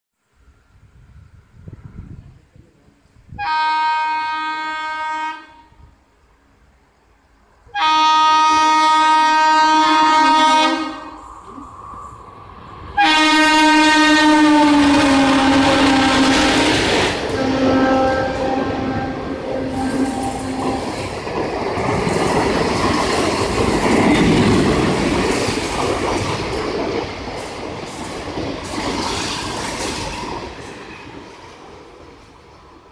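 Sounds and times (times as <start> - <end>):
train rushing past: 3.3 - 32.9
locomotive horn blasts: 3.4 - 5.9, 7.7 - 11.2, 13.0 - 21.0.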